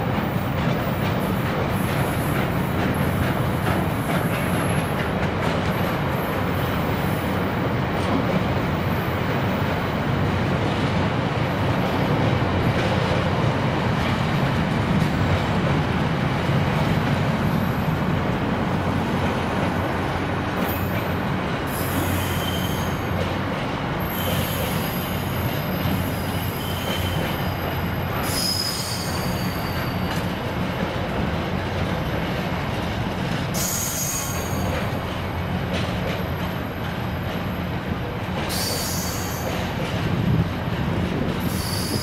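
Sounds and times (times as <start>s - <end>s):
wheel squeal: 21.7s - 23.1s, 24.0s - 30.3s, 33.6s - 34.7s, 38.5s - 39.6s, 41.4s - 42.0s.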